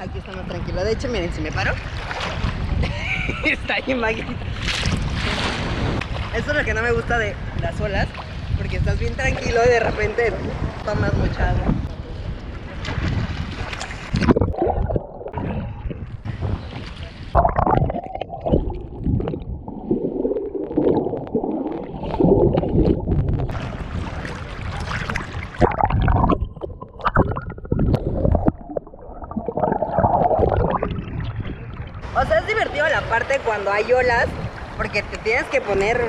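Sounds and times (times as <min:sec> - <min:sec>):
sea water splashing and gurgling: 0:00.0 - 0:03.1, 0:04.2 - 0:36.0
muffled underwater sound: 0:14.2 - 0:32.2.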